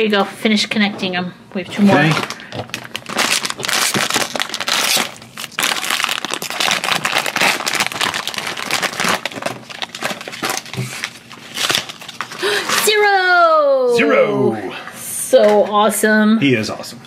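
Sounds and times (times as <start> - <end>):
foil bag crinkling: 2.0 - 13.2.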